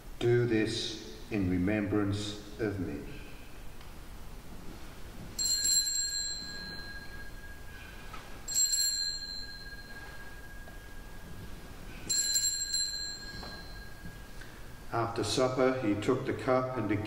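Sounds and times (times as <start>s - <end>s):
small bell ringing: 5.4s - 14.9s.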